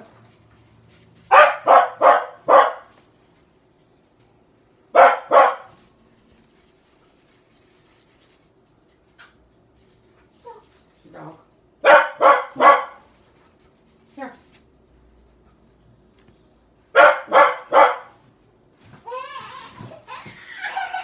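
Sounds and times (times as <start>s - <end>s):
dog barking: 1.3s - 3.0s, 4.9s - 5.8s, 11.8s - 13.1s, 16.9s - 18.2s.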